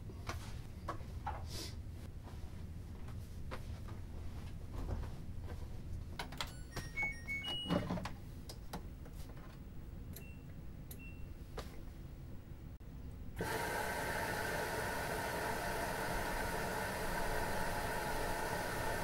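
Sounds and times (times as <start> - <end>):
washing machine humming: 13.2 - 19.0.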